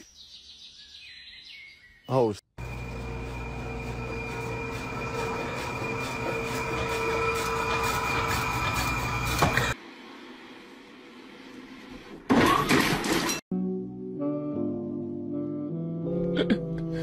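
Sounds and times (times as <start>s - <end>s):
kitchen machinery humming: 2.6s - 9.8s
whining tones: 2.6s - 9.8s.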